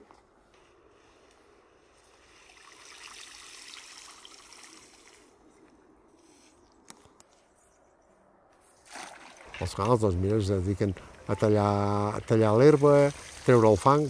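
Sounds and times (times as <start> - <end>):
water trickling and splashing: 2.3 - 5.5, 8.8 - 14.0.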